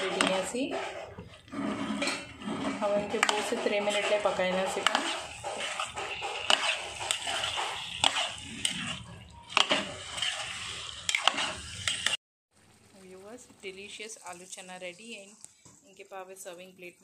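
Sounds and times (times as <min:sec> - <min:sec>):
metal spoon stirring in gravy: 0:00.0 - 0:12.2.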